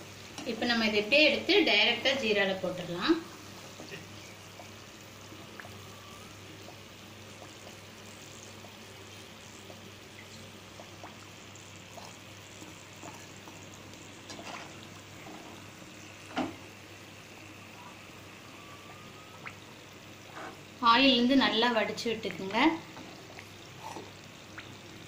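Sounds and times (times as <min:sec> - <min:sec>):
frying sizzle in oil: 0:00.0 - 0:25.0.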